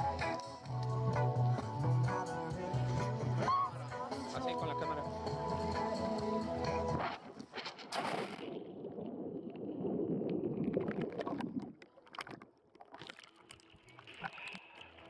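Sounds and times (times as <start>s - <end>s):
small clicks and splashes: 7.4s - 15.0s
muffled underwater rushing and gurgling: 8.1s - 12.4s.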